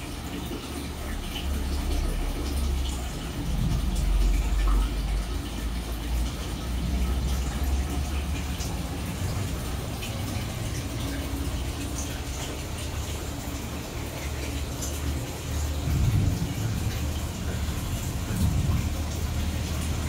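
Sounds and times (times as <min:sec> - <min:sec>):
aquarium bubbling: 0:00.0 - 0:20.0
water splashing: 0:00.0 - 0:20.0
low rumble: 0:01.6 - 0:10.8, 0:15.7 - 0:20.0.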